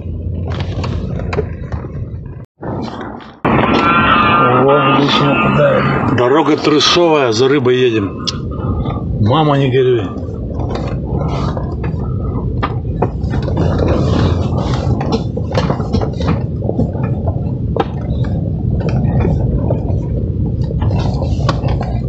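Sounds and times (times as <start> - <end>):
car engine running under load: 0.0 - 6.2, 8.0 - 22.0
knocks and rattles from car body: 10.2 - 22.0.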